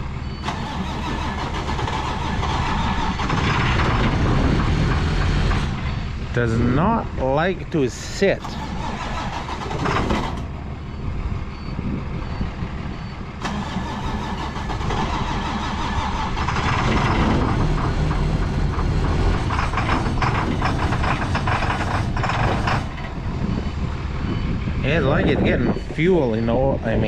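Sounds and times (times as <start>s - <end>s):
engine cranking: 0.4s - 5.9s, 8.3s - 11.0s, 13.4s - 24.0s.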